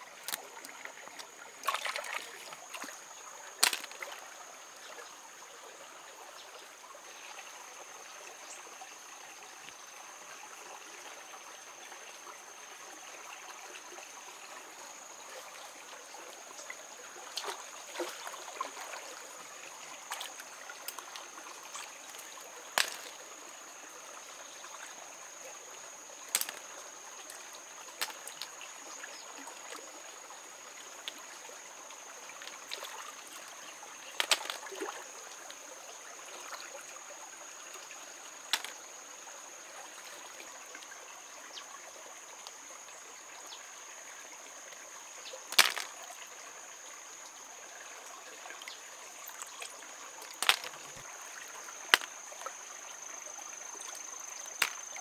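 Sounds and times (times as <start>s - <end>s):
stream trickling over rocks: 0.0s - 55.0s
snails clicking into basket: 3.6s - 4.0s, 22.8s - 23.2s, 26.3s - 26.6s, 34.2s - 34.6s, 38.5s - 38.8s, 45.5s - 45.9s, 50.2s - 51.0s, 51.8s - 52.1s, 54.6s - 54.9s.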